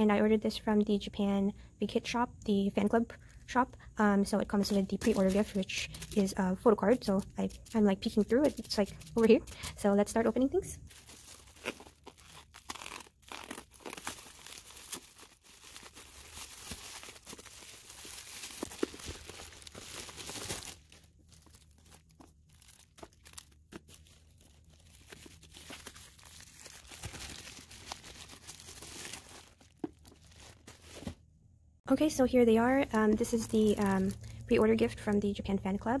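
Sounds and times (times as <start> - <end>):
bubble wrap crinkling and tearing: 4.4 - 31.2, 33.3 - 34.5.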